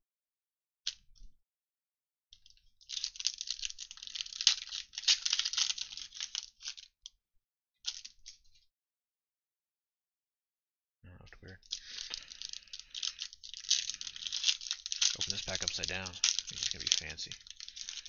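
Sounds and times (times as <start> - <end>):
card pack wrappers crinkling: 2.5 - 6.9, 7.9 - 8.2, 11.6 - 18.0.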